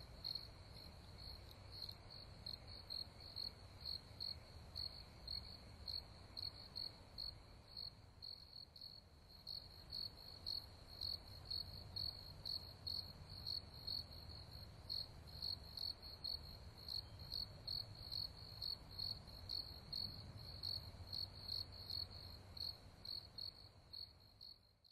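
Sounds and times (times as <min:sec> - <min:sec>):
cricket chirping: 0:00.0 - 0:24.9.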